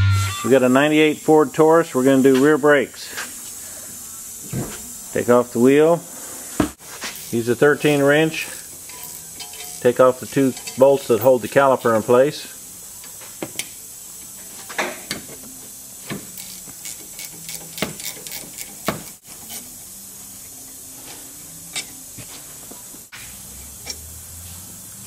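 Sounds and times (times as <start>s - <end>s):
steady hiss: 0.4s - 25.0s
wrench clicking on metal bolts: 8.9s - 11.3s, 16.3s - 19.7s.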